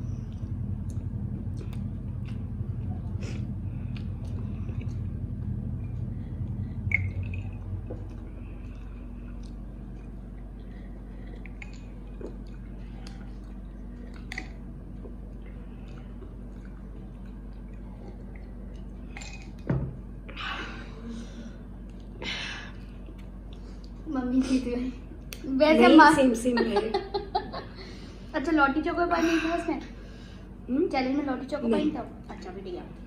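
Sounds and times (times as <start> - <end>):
chewing soft snack cake: 0.0 - 19.6, 21.2 - 24.1
faint low hum: 0.0 - 33.0.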